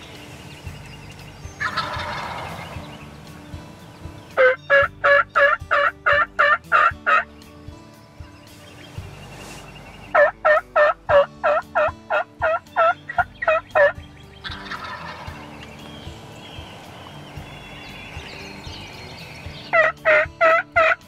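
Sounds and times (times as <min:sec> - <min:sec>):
faint turkey calling: 0:00.8 - 0:02.9, 0:04.3 - 0:07.4, 0:08.7 - 0:21.0
turkey yelping: 0:01.6 - 0:02.8, 0:04.4 - 0:07.3, 0:10.1 - 0:15.4, 0:19.6 - 0:21.0.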